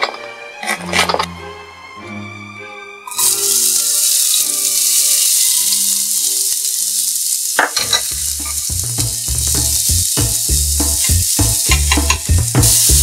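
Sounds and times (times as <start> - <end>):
vegetables sizzling in oil: 3.1 - 13.0.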